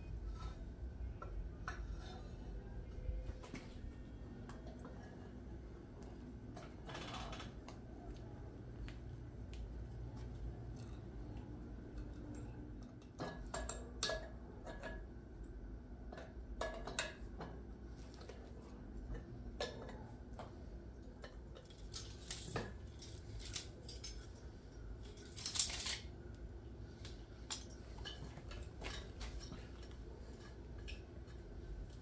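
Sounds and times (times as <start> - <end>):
hand tools clinking on metal: 21.6 - 26.1.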